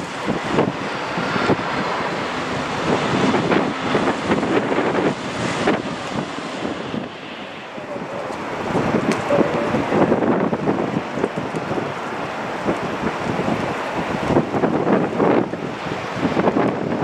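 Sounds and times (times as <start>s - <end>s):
jet engine landing: 0.0s - 17.0s
wind buffeting microphone: 0.0s - 17.0s.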